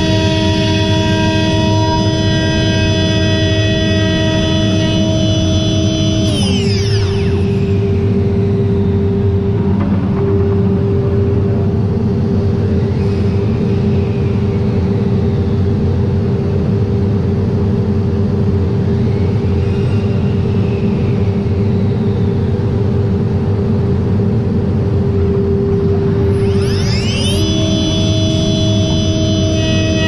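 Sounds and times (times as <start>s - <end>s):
rising electronic sweeps: 0.0s - 13.4s, 25.8s - 30.0s
machine running with steady hum: 0.0s - 30.0s.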